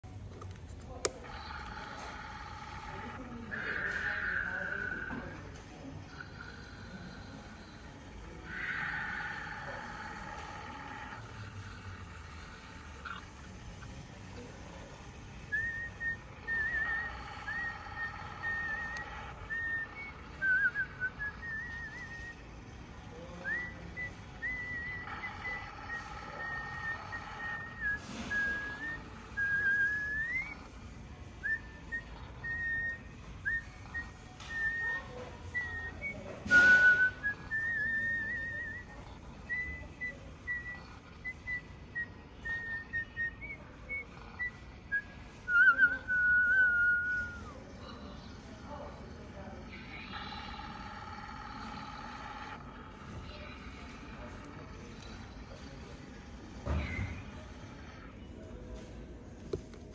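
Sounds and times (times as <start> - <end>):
electronic toy whistle: 15.5 - 22.4, 23.4 - 30.8, 31.4 - 47.6.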